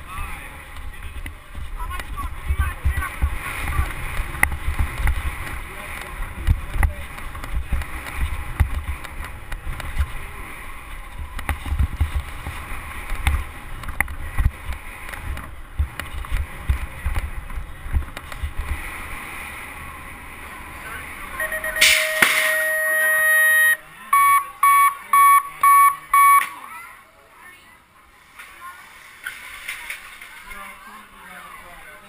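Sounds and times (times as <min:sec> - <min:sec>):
wind buffeting microphone: 0:00.0 - 0:21.4.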